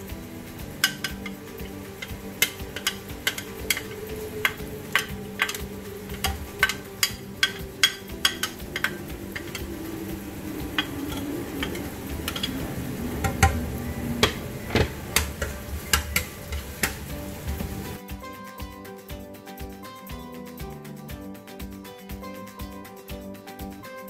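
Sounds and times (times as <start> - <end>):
faint sizzle: 0.0 - 18.0
wooden spatula clicking on wok: 0.8 - 9.8, 14.2 - 17.9.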